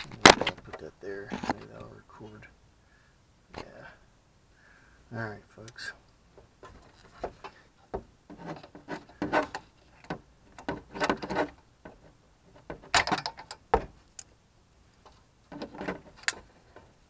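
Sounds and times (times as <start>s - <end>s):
clicks and knocks of pump housing: 0.0s - 1.9s, 6.4s - 14.3s, 15.5s - 17.0s.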